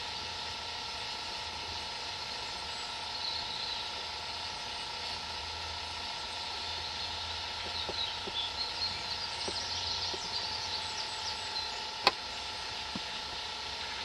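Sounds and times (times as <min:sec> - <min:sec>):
bird chirping: 0:06.6 - 0:11.9.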